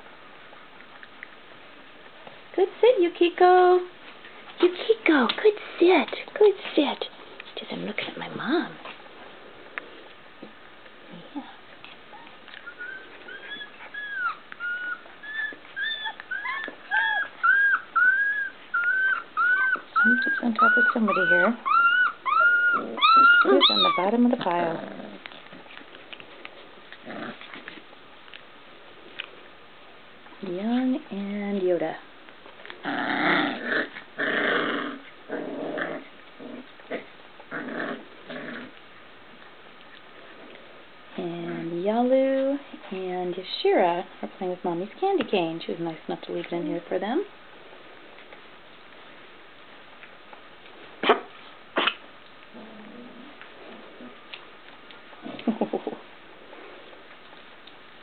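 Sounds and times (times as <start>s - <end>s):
puppies play-growling: 3.9s - 42.9s, 46.2s - 58.0s
puppy whining: 11.8s - 27.9s.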